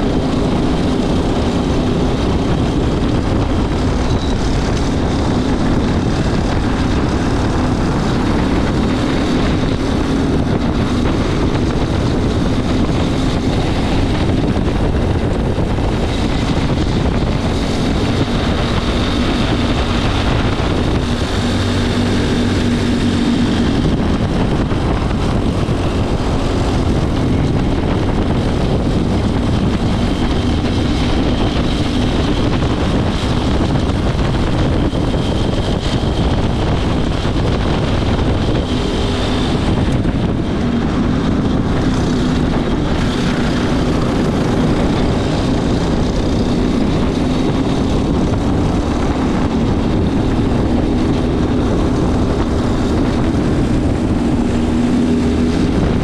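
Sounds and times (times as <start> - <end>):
go-kart engine running hard: 0.0 - 56.0.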